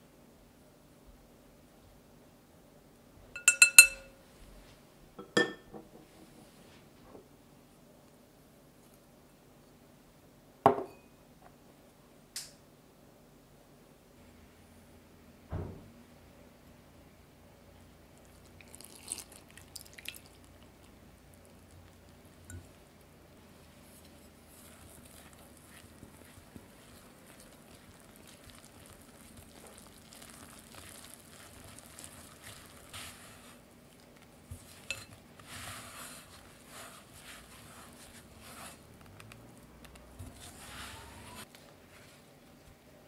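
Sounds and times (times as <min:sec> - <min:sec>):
chopsticks tapping glass bowl: 0:03.4 - 0:04.1, 0:05.2 - 0:05.7
chopsticks stirring wet dough: 0:18.2 - 0:42.2.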